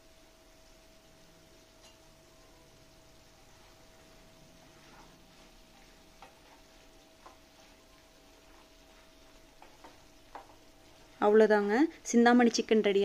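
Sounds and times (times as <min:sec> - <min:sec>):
faint steady tone: 0:00.0 - 0:06.1
wooden spatula knocking on frying pan: 0:09.2 - 0:10.7.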